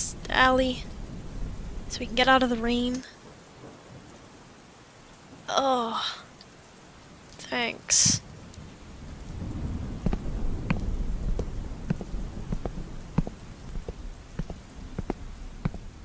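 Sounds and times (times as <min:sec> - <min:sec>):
low thunder rumble: 0:00.0 - 0:04.2, 0:08.2 - 0:16.0
raindrops ticking: 0:00.0 - 0:16.0
steady rain hiss: 0:00.0 - 0:16.0.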